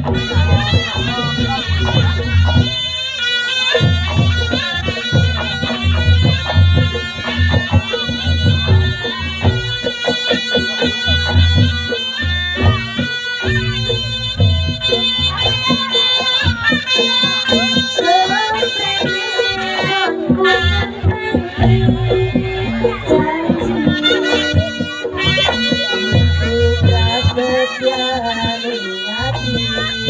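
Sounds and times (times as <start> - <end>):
drum strokes: 0.0 - 30.0
shrill shawm melody: 0.0 - 30.0.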